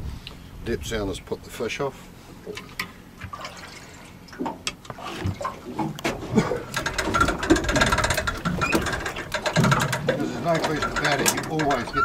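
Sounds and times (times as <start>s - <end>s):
water sloshing: 2.4s - 12.0s
fishing line and gear rattling: 6.4s - 12.0s.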